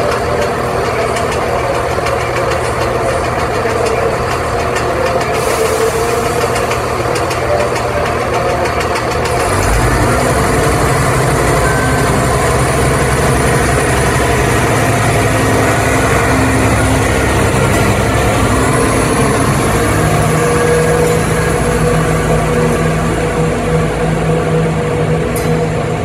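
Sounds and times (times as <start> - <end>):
diesel engine idling: 0.0 - 26.0
steady low tone: 10.0 - 26.0.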